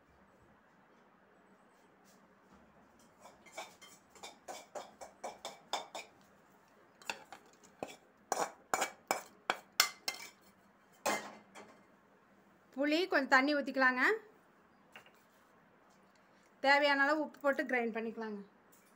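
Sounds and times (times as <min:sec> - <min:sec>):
spoon clinking against metal bowl: 0:07.0 - 0:10.4.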